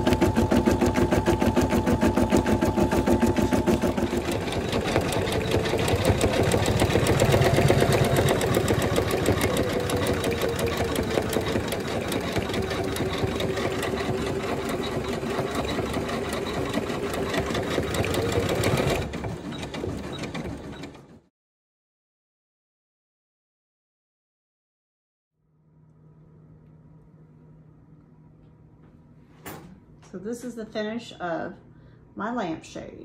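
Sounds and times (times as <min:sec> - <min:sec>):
embroidery machine stitching: 0:00.0 - 0:21.3.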